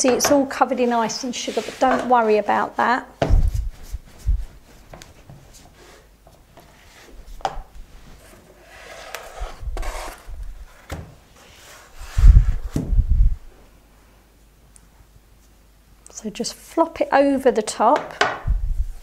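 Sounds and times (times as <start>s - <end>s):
loud dull thumps: 3.2s - 4.4s
rolling pin rolling on plastic board: 8.6s - 10.8s.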